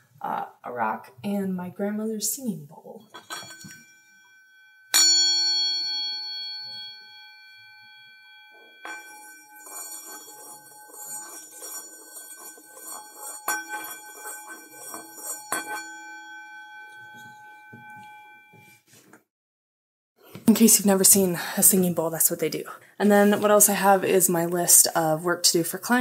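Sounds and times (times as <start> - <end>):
mallet rubbing bowl rim: 3.0 - 5.2, 6.5 - 18.9
singing bowl struck and ringing: 3.0 - 18.8.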